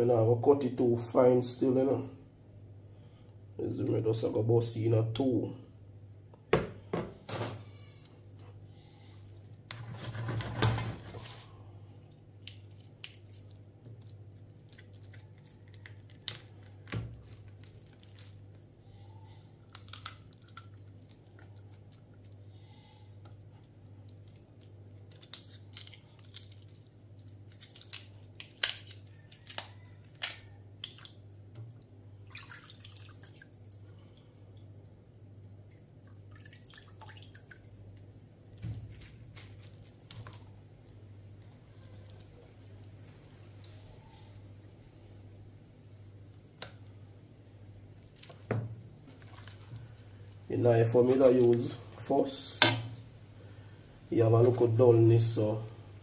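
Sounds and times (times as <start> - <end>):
wet clicks and squelches: 12.0 - 22.4, 23.2 - 31.8, 35.7 - 44.9, 46.3 - 47.0.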